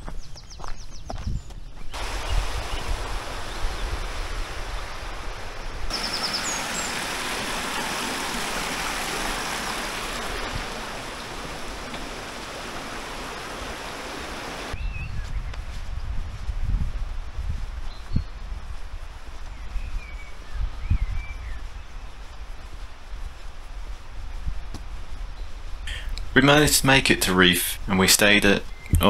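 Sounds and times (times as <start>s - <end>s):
water rushing over stones: 2.0s - 14.8s
bird chirps: 5.9s - 7.1s.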